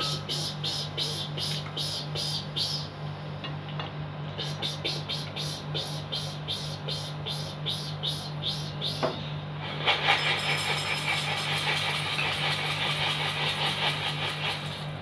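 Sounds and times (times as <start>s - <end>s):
high-pitched chirping: 0.0s - 1.2s.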